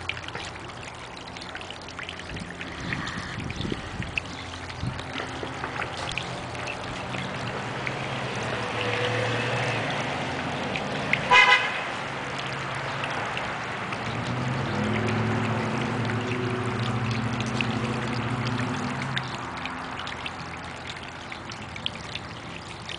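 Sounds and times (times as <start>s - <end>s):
low vehicle engine hum: 0.0s - 22.9s
water trickling and splashing: 0.0s - 22.9s
car horn toot: 11.3s - 11.8s.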